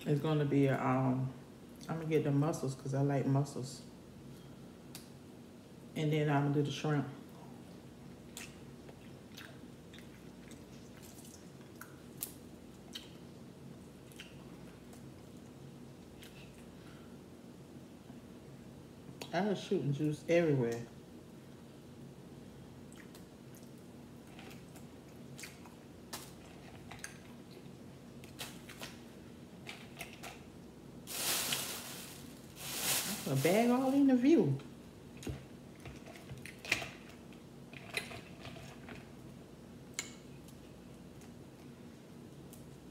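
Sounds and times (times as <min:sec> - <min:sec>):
chewing and mouth smacks: 0:08.2 - 0:16.7, 0:22.9 - 0:29.0
rustling noise: 0:31.1 - 0:34.3.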